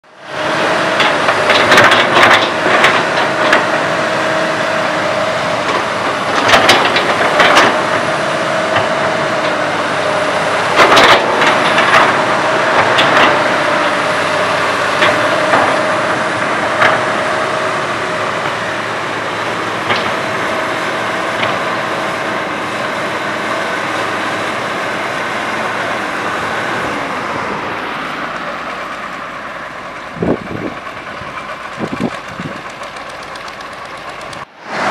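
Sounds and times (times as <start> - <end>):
excavator diesel engine running: 0.0 - 34.9.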